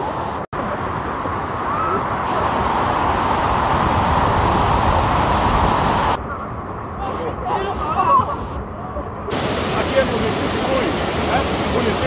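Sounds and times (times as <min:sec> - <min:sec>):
water rushing down spillway: 0:00.1 - 0:06.2, 0:09.3 - 0:12.0.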